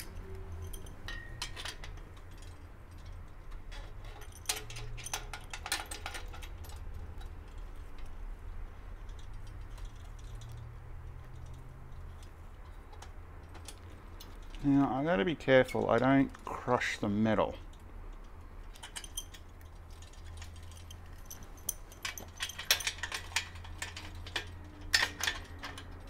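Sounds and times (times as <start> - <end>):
metallic clinks of hand tools: 0.0 - 7.3.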